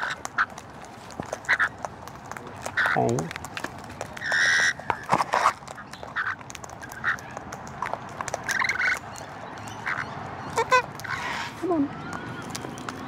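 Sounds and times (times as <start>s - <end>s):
scattered clicks and taps: 0.2s - 9.7s
parrots squawking: 4.2s - 5.0s, 8.4s - 12.6s.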